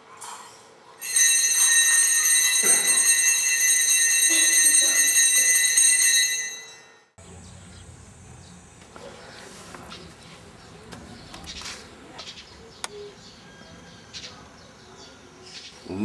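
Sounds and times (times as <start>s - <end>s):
bell-like ringing tones: 1.0s - 7.2s.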